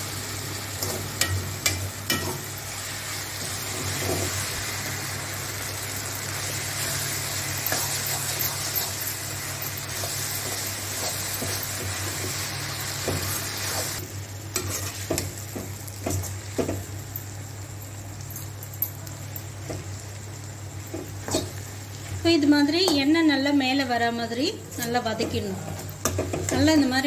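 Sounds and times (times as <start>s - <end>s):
vegetables sizzling in oil: 0.0s - 27.0s
spatula scraping a pan: 14.6s - 15.2s.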